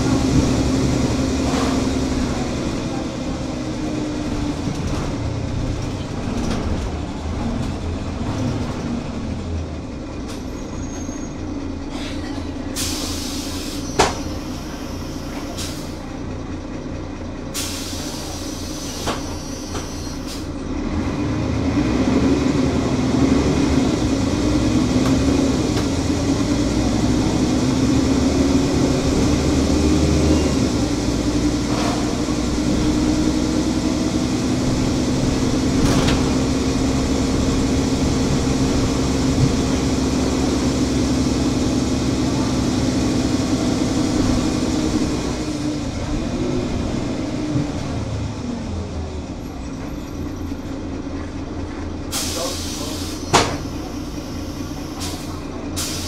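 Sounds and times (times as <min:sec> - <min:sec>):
bus diesel engine idling: 0:00.0 - 0:56.0.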